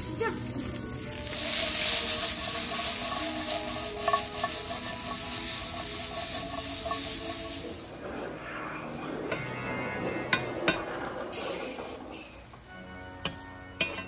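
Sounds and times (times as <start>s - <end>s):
green beans sizzling in oil: 0.0s - 8.0s.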